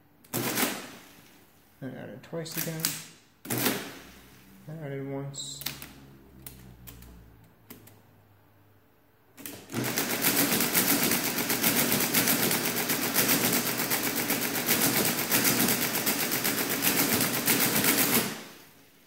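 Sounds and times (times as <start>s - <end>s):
mechanical calculator clattering: 9.7s - 18.4s.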